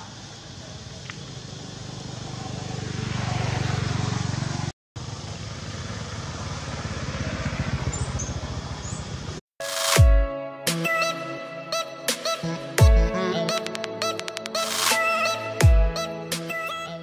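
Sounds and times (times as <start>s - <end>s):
vehicle engine running: 0.2s - 9.4s.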